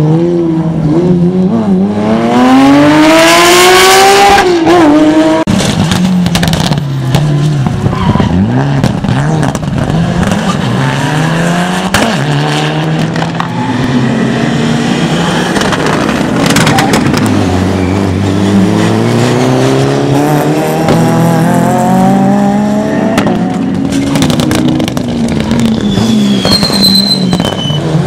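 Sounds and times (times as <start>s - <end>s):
rally car engine accelerating: 0.0s - 28.0s
tyre squeal: 7.8s - 8.5s, 16.6s - 18.6s, 25.6s - 28.0s.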